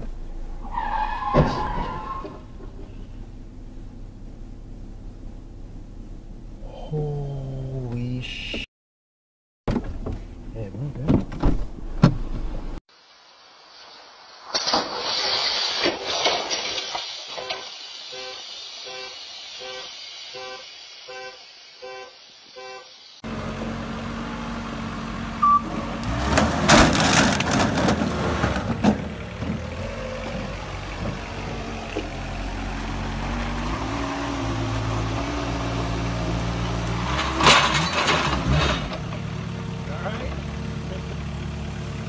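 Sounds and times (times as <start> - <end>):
forklift engine running: 23.2 - 42.0.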